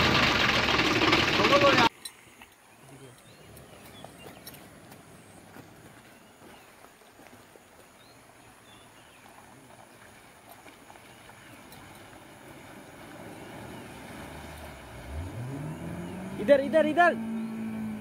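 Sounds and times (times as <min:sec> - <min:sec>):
steady rushing water: 0:00.0 - 0:18.0
vehicle engine revving: 0:12.6 - 0:18.0.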